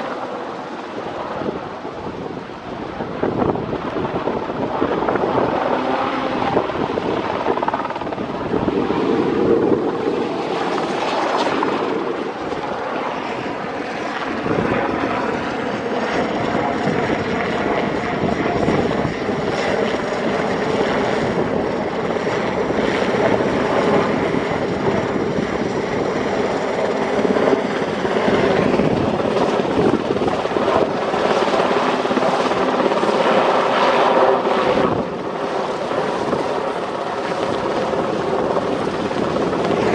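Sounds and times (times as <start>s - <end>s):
helicopter flying overhead: 0.0s - 39.9s.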